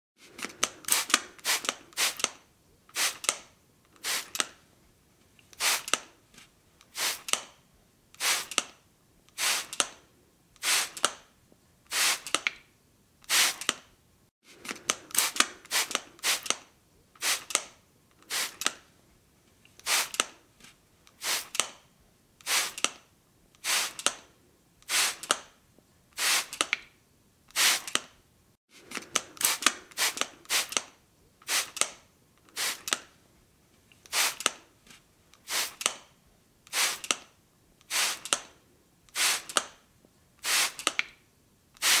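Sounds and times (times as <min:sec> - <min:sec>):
spray bottle spraying: 0:00.9 - 0:02.3, 0:02.9 - 0:03.3, 0:04.0 - 0:04.4, 0:05.5 - 0:06.0, 0:06.9 - 0:07.4, 0:08.2 - 0:08.6, 0:09.4 - 0:09.8, 0:10.6 - 0:11.1, 0:11.9 - 0:12.4, 0:13.3 - 0:13.7, 0:15.1 - 0:16.6, 0:17.2 - 0:17.6, 0:18.2 - 0:18.7, 0:19.8 - 0:20.2, 0:21.2 - 0:21.6, 0:22.4 - 0:22.9, 0:23.6 - 0:24.1, 0:24.9 - 0:25.3, 0:26.2 - 0:26.7, 0:27.5 - 0:28.0, 0:29.4 - 0:30.8, 0:31.4 - 0:31.8, 0:32.5 - 0:33.0, 0:34.0 - 0:34.5, 0:35.4 - 0:35.9, 0:36.7 - 0:37.2, 0:37.9 - 0:38.4, 0:39.1 - 0:39.6, 0:40.4 - 0:41.0, 0:41.8 - 0:42.0.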